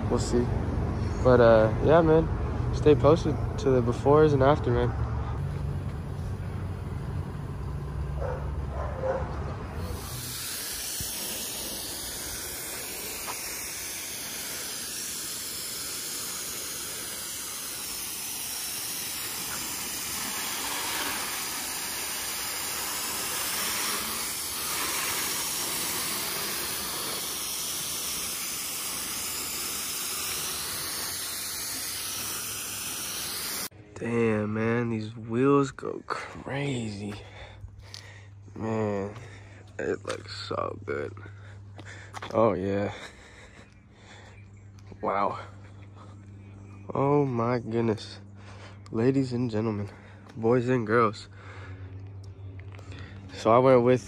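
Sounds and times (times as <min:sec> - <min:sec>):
low hum: 0:04.9 - 0:42.1, 0:42.9 - 0:54.0
hose spraying water: 0:09.6 - 0:33.7.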